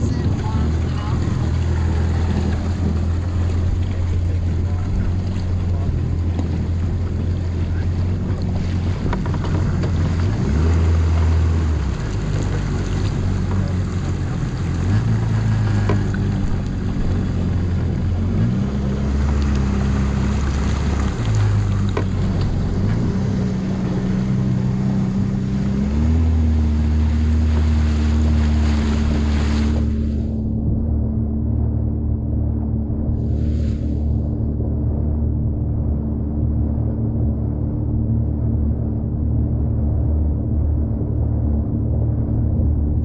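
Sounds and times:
jet ski engine revving: 0:00.0 - 0:30.8
water noise: 0:00.0 - 0:43.0
wind: 0:00.0 - 0:43.0.

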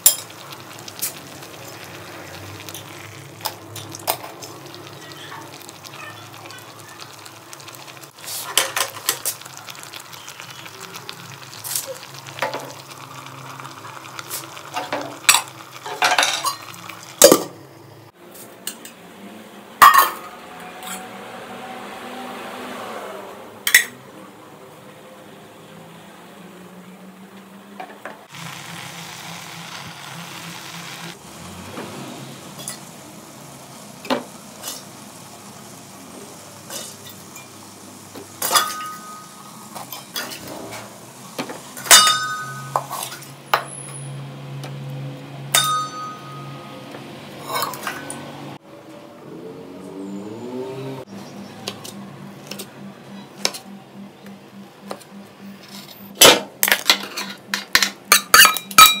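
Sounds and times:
pots and cutlery clinking: 0:00.0 - 0:01.2, 0:08.2 - 0:10.1, 0:11.6 - 0:13.0, 0:13.6 - 0:17.5, 0:19.8 - 0:21.1, 0:32.6 - 0:32.9, 0:36.7 - 0:37.6, 0:38.2 - 0:44.0, 0:45.5 - 0:46.6, 0:47.4 - 0:48.2, 0:55.6 - 0:59.0.

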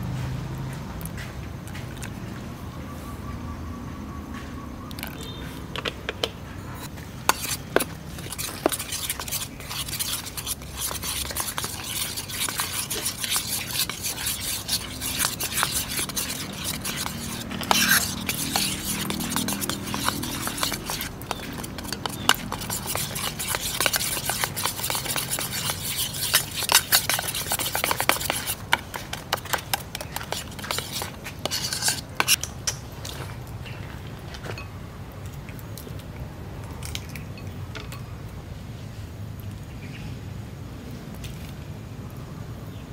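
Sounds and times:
metal spoon stirring batter in bowl: 0:06.8 - 0:33.4.

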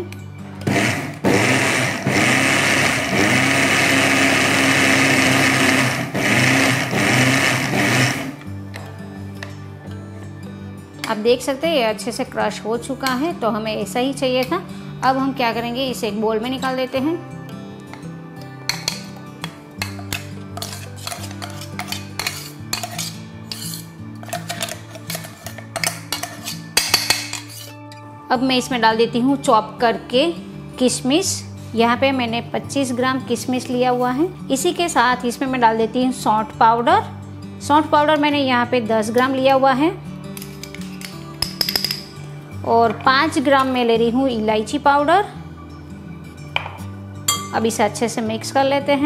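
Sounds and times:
soft background music: 0:00.0 - 0:49.0
mixer grinder motor pulsing: 0:00.6 - 0:08.4
metal jar clinking and scraping: 0:19.8 - 0:27.8, 0:40.3 - 0:42.1.

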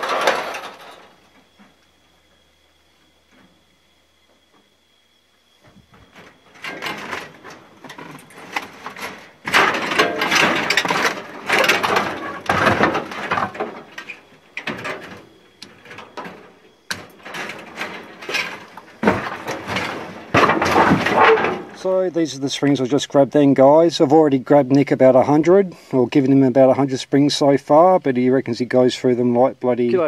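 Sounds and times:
metal springs rattling and scraping: 0:00.0 - 0:01.2, 0:06.4 - 0:22.3.

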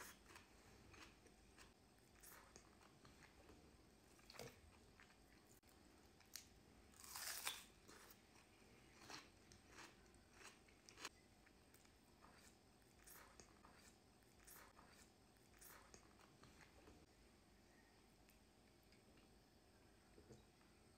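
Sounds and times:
person chewing: 0:00.0 - 0:05.6, 0:06.2 - 0:17.0
crisp crunch of onion bite: 0:06.4 - 0:08.2.

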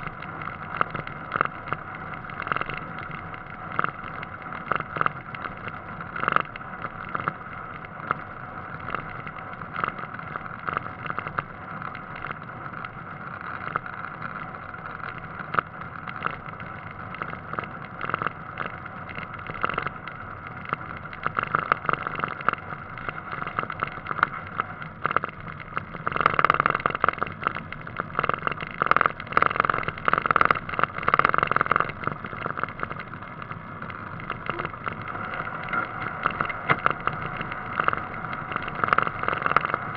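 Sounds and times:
small knocks and rattles: 0:00.0 - 0:39.9
wind and road noise: 0:00.0 - 0:39.9.

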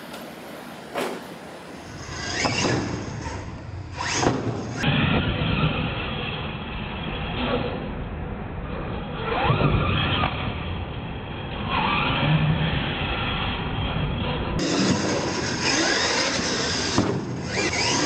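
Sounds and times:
toy truck motors whining: 0:01.8 - 0:07.6, 0:11.3 - 0:18.0.

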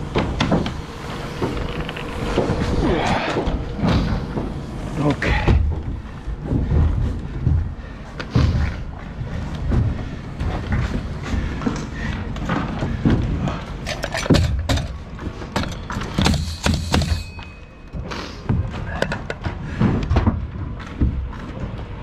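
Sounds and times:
knocks and thuds on timber: 0:14.3 - 0:17.3, 0:18.5 - 0:21.7.

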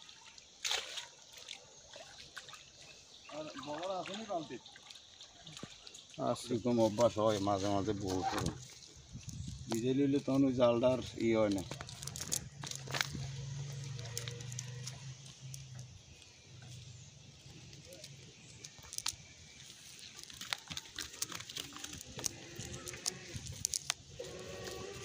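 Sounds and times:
drawn-out pitched call: 0:13.2 - 0:15.8, 0:24.2 - 0:25.0.

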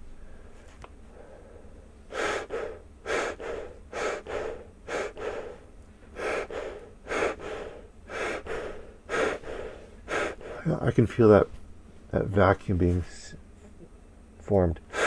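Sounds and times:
quick forceful breathing through a respirator: 0:00.2 - 0:10.7.

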